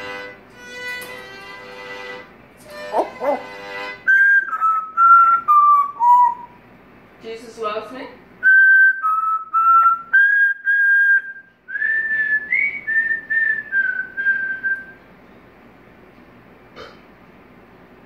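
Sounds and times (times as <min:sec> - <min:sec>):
parrot whistling a tune: 0:02.7 - 0:06.6, 0:08.4 - 0:15.0.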